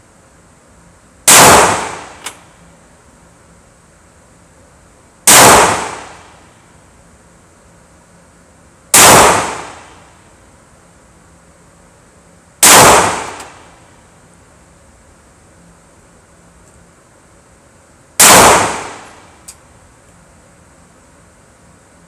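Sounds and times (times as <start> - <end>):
pistol shots echoing indoors: 1.3 - 2.3, 5.3 - 6.2, 9.0 - 10.0, 12.6 - 13.6, 18.2 - 19.2.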